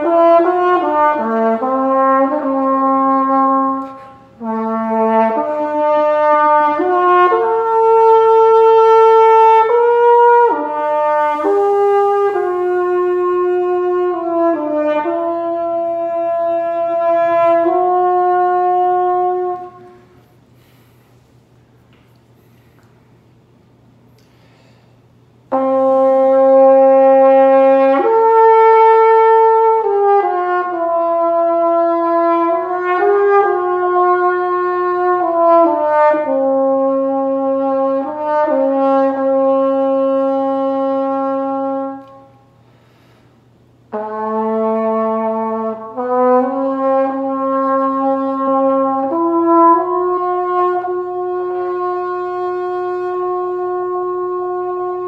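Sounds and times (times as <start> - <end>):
french horn playing melody: 0.0 - 20.9, 25.5 - 42.7, 43.8 - 55.0.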